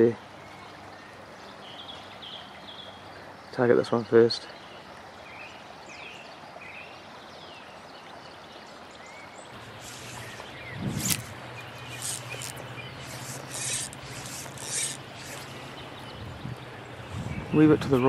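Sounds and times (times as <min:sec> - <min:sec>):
river water running: 0:04.5 - 0:17.2
short rustling noises: 0:09.6 - 0:16.0.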